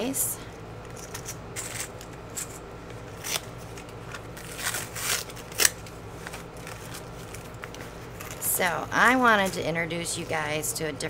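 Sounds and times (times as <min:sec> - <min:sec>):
plastic bags crinkling: 0:03.0 - 0:10.2.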